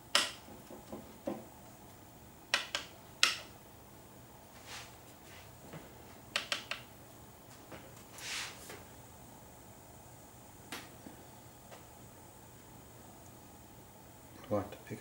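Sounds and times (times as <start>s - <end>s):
soft rubbing: 4.5s - 5.6s, 8.0s - 8.7s
sharp clicks and taps: 6.3s - 6.9s.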